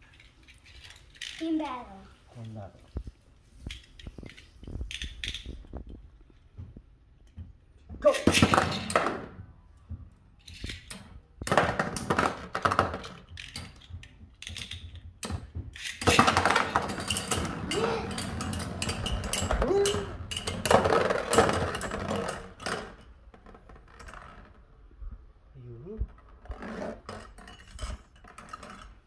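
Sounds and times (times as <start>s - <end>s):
spinning tops clattering in plastic arena: 10.4s - 24.6s, 26.5s - 29.0s.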